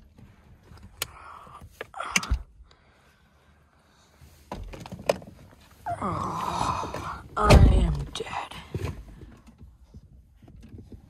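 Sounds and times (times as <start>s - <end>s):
rustling and scraping: 6.6s - 11.0s
heavy thump: 7.4s - 8.2s.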